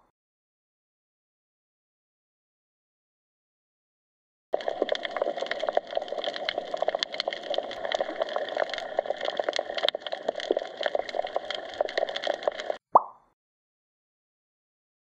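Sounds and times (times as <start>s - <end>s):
crackling clicks: 4.6s - 12.8s.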